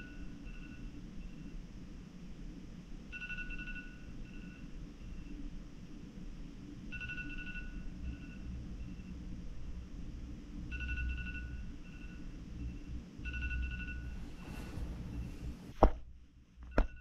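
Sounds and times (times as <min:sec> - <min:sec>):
phone alarm beeps: 0:00.0 - 0:01.4, 0:03.1 - 0:05.3, 0:06.9 - 0:09.0, 0:10.7 - 0:15.5, 0:16.7 - 0:17.0.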